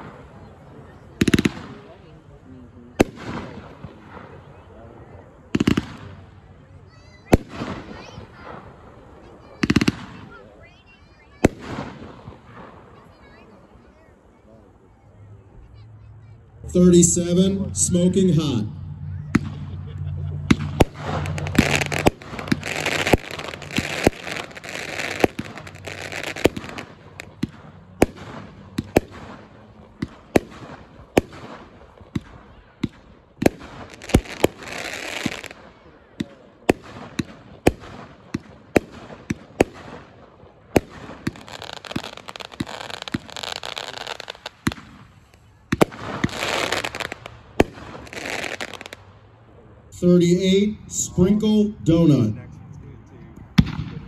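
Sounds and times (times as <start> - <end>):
firework launch reports: 0.0 - 54.0
firework breaks crackling: 19.3 - 49.3.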